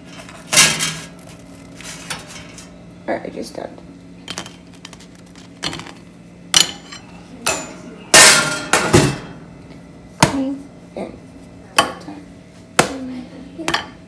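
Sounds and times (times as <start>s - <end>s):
dishes and utensils clinking: 4.3s - 9.4s.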